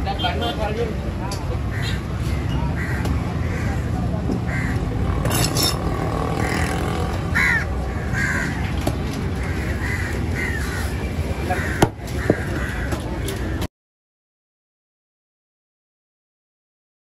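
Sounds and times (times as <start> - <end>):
crows cawing: 1.7 - 5.0, 6.3 - 8.8, 9.4 - 13.7.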